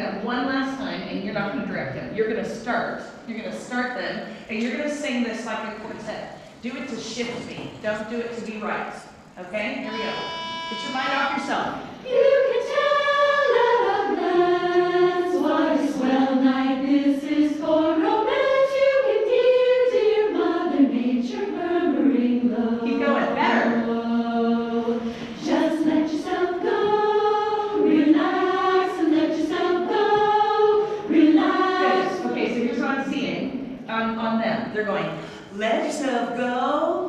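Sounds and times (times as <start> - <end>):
choir singing: 9.8 - 33.6.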